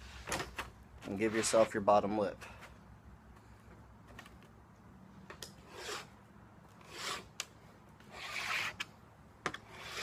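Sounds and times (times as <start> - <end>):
metal rule scraping sheet metal: 1.1 - 1.8, 5.6 - 6.2, 6.8 - 7.3, 8.1 - 8.9, 9.6 - 10.0.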